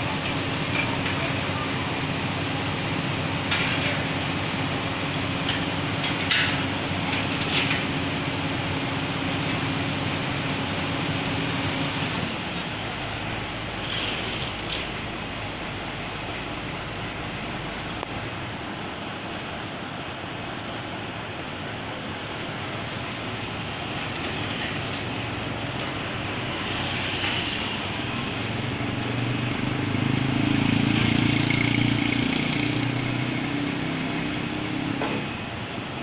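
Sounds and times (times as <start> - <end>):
heavy diesel machinery idling: 0.0 - 28.8
motorcycle passing: 26.4 - 35.4.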